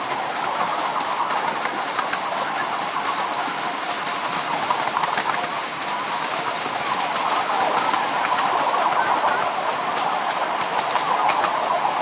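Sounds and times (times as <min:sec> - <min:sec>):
wheels clicking over rails: 0:00.0 - 0:12.0
steam engine hiss: 0:01.0 - 0:08.3.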